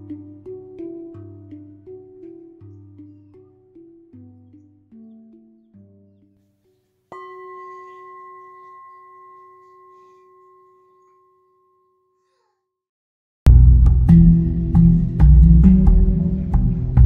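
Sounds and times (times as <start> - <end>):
bell tone ringing: 7.1 - 12.2
loud music: 13.5 - 17.0.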